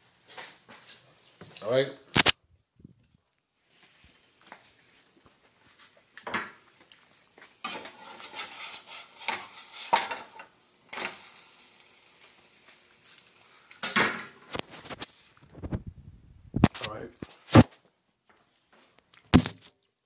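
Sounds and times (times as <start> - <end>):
pancake sizzling in frying pan: 3.6 - 15.4
spatula scraping and knocking pan: 7.6 - 11.4.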